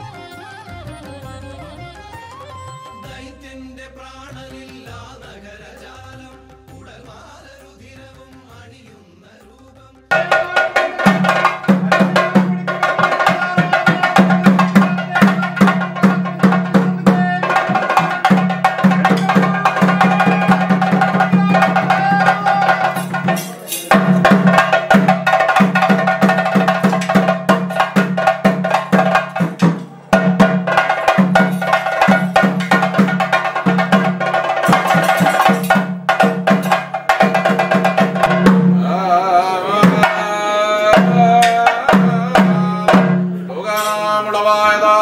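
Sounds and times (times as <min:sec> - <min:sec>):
wavering melody: 0:00.0 - 0:03.4
fast drumming: 0:10.1 - 0:43.4.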